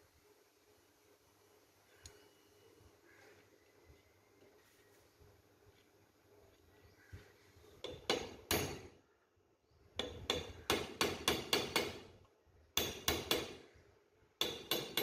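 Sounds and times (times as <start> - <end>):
hammer striking steel punch: 7.8 - 8.9, 10.0 - 12.1, 12.8 - 13.6, 14.4 - 15.0.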